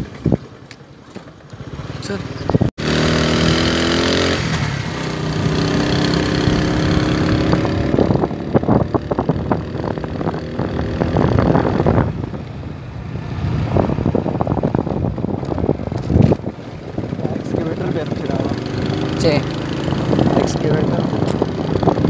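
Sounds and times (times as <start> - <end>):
vehicle engine running: 11.2 - 22.0.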